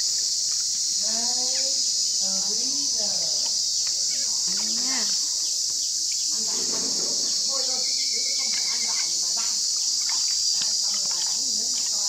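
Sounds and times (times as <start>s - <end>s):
high-pitched insect chorus: 0.0s - 12.0s
water splashing in a basin: 6.4s - 12.0s.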